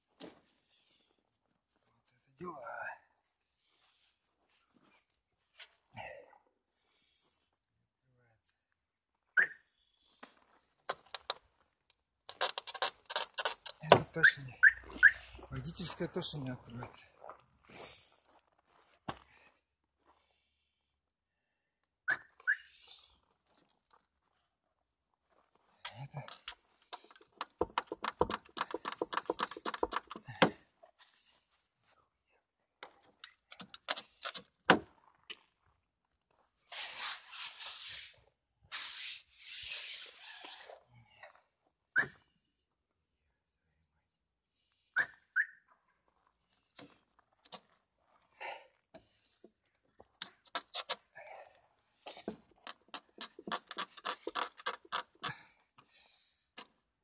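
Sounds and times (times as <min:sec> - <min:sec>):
scraping rubs: 0:26.3 - 0:30.3, 0:36.7 - 0:40.8, 0:52.1 - 0:55.4
sharp crunches and knocks: 0:52.4 - 0:55.3.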